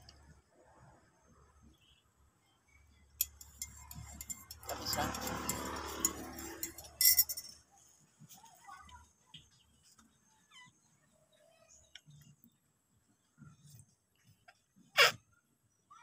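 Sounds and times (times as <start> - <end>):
spoon clinking in ceramic mug: 3.2 - 7.6.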